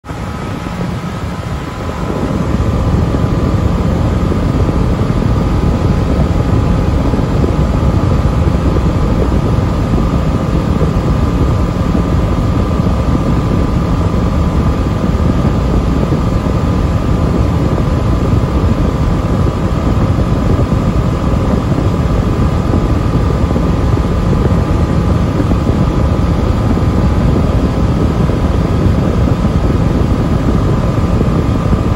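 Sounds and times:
aircraft engine and propeller drone: 0.0 - 31.9
rushing airflow: 0.0 - 31.9.

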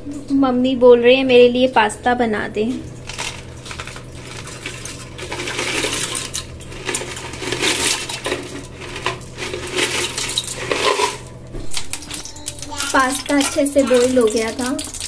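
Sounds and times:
dry pasta rattling into pot: 3.0 - 15.0.

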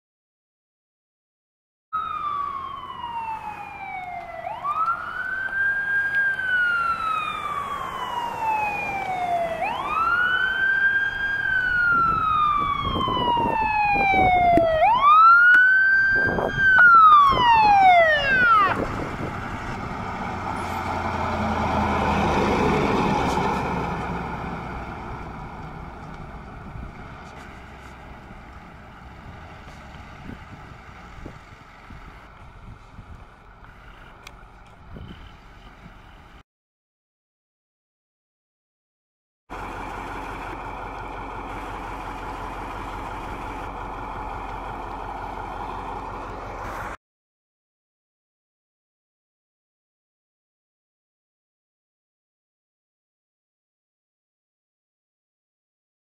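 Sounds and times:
fire engine siren wailing: 2.0 - 36.4, 39.5 - 47.0
truck engine and road noise: 2.0 - 36.4, 39.5 - 47.0.

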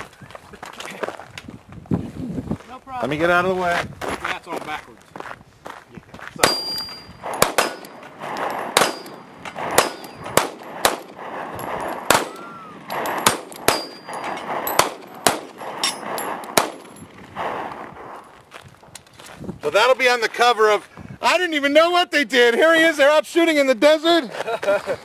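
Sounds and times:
steel targets clanging: 6.4 - 8.1, 8.8 - 12.2, 12.9 - 17.1
pistol shots: 6.4 - 17.6.

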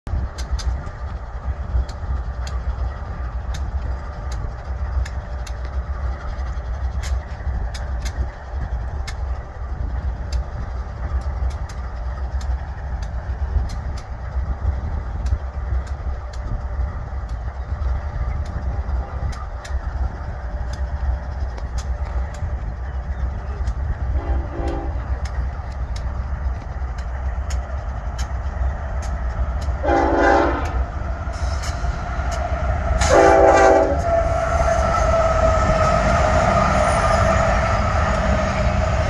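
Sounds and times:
diesel locomotives rumbling past: 0.0 - 39.0
sharp clicks: 1.8 - 9.3, 10.2 - 14.2, 25.1 - 29.8.

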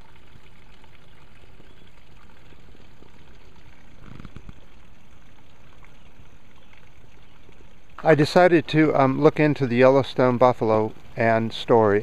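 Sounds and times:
water trickling: 0.0 - 12.0
faint ticks: 2.3 - 6.0.

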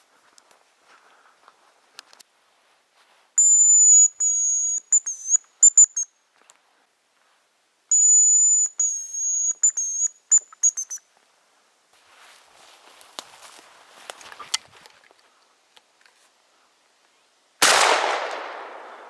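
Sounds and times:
high thin decoy whistle: 3.4 - 6.1, 7.9 - 11.0.

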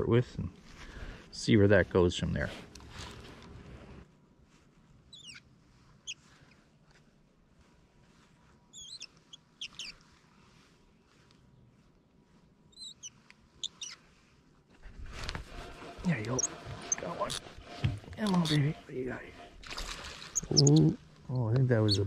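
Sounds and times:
fishing reel squeaking: 18.2 - 18.9, 20.3 - 20.9.

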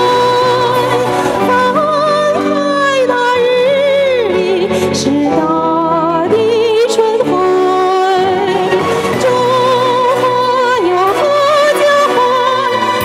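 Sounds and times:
instrumental accompaniment: 0.0 - 13.0
woman singing: 0.0 - 13.0.

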